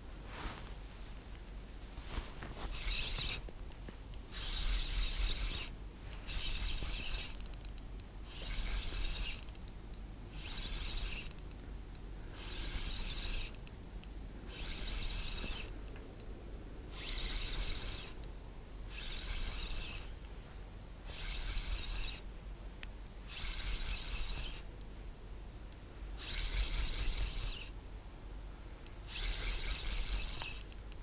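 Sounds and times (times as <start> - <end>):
fishing reel clicking whir: 2.8 - 13.8, 14.5 - 16.3, 16.9 - 18.3, 18.9 - 20.3, 21.1 - 22.2, 23.3 - 24.8, 26.2 - 27.8, 28.8 - 31.0.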